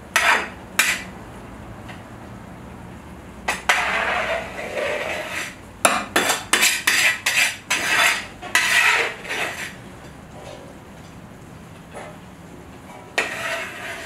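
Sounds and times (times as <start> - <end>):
metal skimmer scraping pot: 6.2 - 9.8, 13.1 - 14.0.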